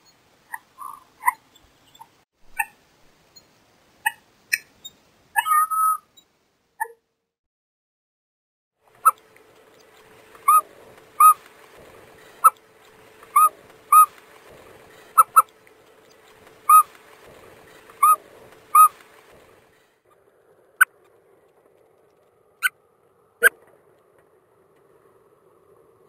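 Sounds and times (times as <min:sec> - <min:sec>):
bird calling short sharp notes: 0:05.4 - 0:06.2, 0:10.4 - 0:10.6, 0:11.2 - 0:11.4, 0:13.3 - 0:14.2, 0:15.2 - 0:15.5, 0:16.7 - 0:16.9, 0:18.0 - 0:19.0.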